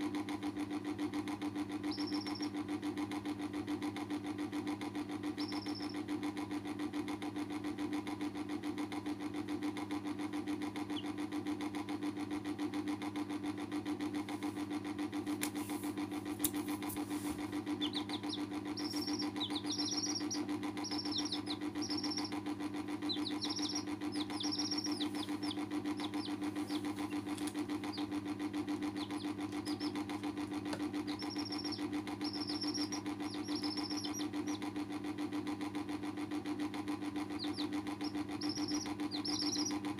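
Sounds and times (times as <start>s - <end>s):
steady machine hum: 0.0s - 39.9s
chicks peeping: 1.8s - 2.6s, 5.3s - 6.0s, 10.8s - 11.1s, 16.4s - 34.7s, 37.2s - 39.9s.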